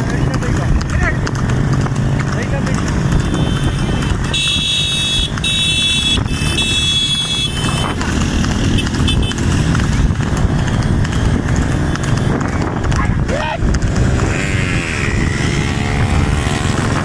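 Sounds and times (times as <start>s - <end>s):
horse hoofbeats trotting: 0.0s - 17.0s
motorcycle engine: 0.0s - 17.0s
wind rush: 8.3s - 17.0s.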